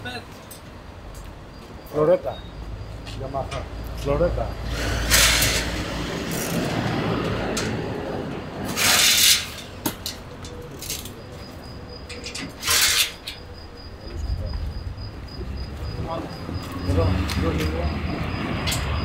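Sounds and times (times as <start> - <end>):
short hissing bursts: 4.7 - 6.0.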